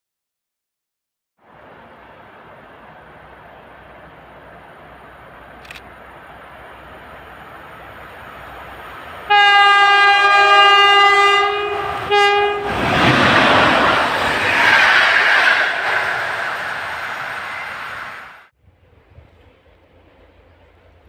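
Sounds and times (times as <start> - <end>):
train passing at speed: 1.4 - 21.0
locomotive horn blasts: 9.3 - 12.8.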